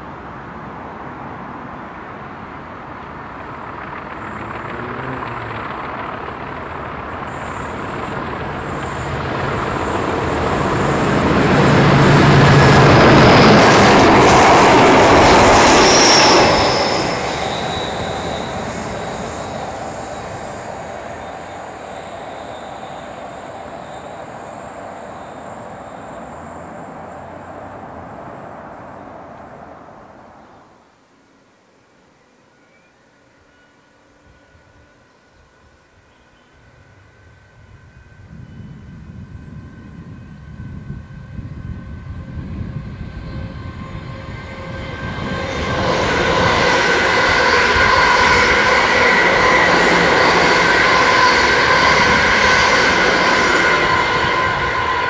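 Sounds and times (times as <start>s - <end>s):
diesel locomotives passing: 0.0s - 31.0s, 33.1s - 55.0s
high locomotive whistle: 7.2s - 28.6s, 36.1s - 55.0s.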